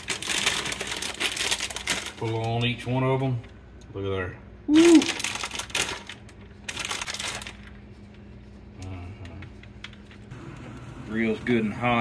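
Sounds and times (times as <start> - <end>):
plastic bag rustling and crinkling: 0.0 - 3.0, 4.8 - 8.1
low steady hum: 0.0 - 12.0.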